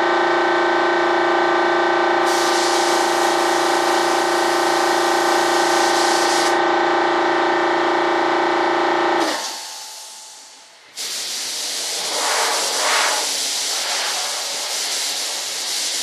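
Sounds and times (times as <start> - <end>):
air compressor humming: 0.0 - 16.0
spray gun hissing: 2.3 - 4.7, 5.3 - 6.6, 9.3 - 16.0.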